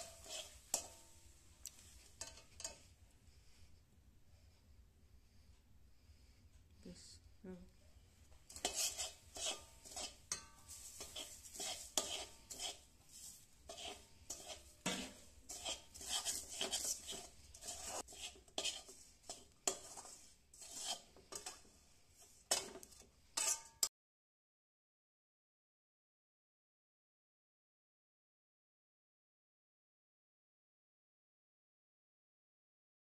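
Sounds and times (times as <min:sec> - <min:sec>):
metal spatula scraping a wok: 0:00.0 - 0:03.7, 0:08.4 - 0:23.9.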